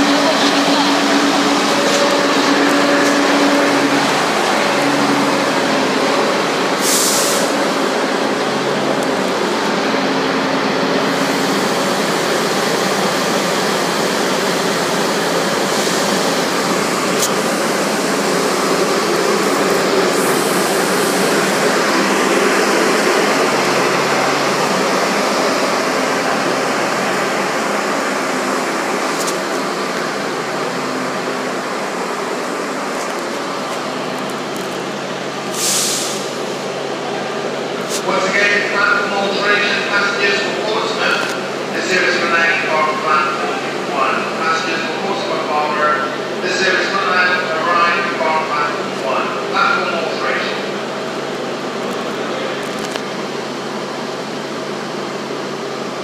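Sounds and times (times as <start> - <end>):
engine hum: 0.0 - 37.9
train noise at platform: 0.0 - 56.0
brief high hiss: 6.8 - 7.6, 35.5 - 36.3.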